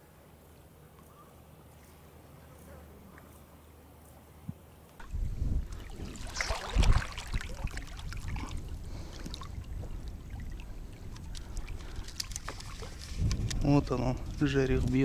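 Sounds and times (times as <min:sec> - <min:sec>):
river water splashing: 0:05.0 - 0:13.3.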